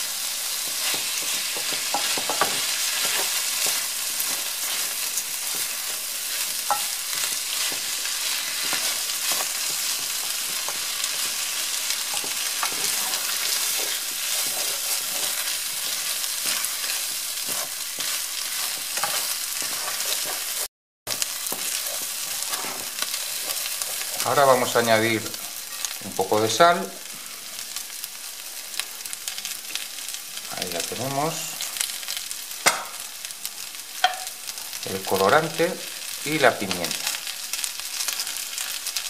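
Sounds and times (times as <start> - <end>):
food sizzling in a pan: 0.0 - 39.0
wooden spoon scraping a pan: 0.4 - 26.0.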